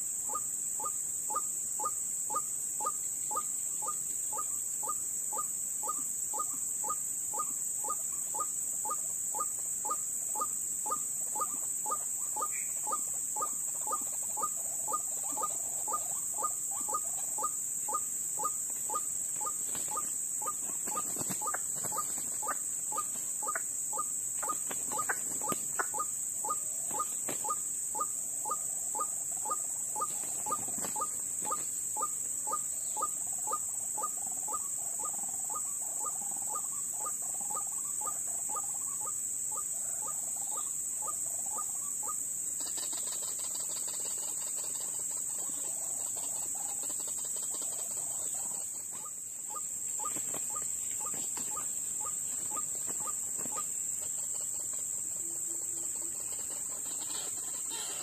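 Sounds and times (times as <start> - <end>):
high-pitched insect drone: 0.0 - 58.0.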